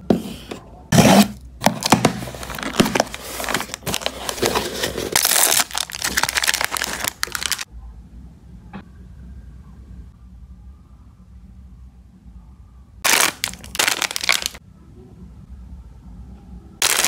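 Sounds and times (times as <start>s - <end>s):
plastic wrapper crinkling: 1.6s - 7.7s, 13.0s - 14.6s.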